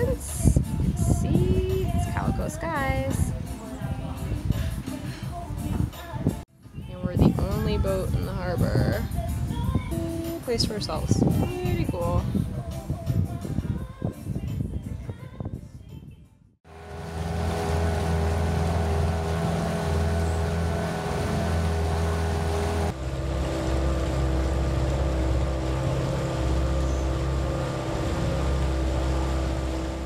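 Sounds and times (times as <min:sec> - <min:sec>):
outboard motor running: 0:16.7 - 0:30.0.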